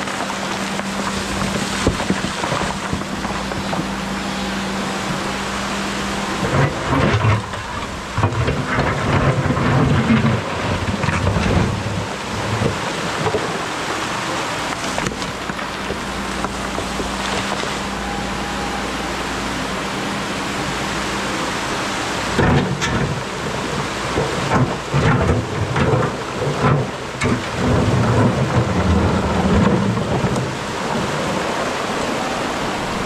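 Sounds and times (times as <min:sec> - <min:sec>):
stones rumbling and knocking: 0:00.0 - 0:04.0, 0:06.4 - 0:17.9, 0:22.4 - 0:31.0
excavator engine humming: 0:00.0 - 0:33.0.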